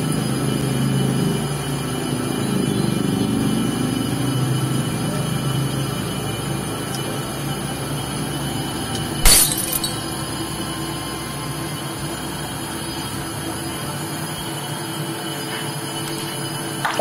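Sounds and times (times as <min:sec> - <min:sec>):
sharp metallic crash: 0:09.2 - 0:10.1.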